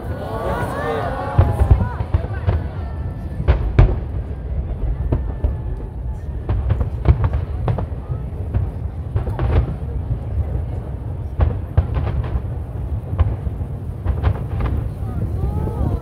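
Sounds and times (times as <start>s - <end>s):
fireworks bursting: 0.0s - 16.0s
low rumble: 1.3s - 11.4s.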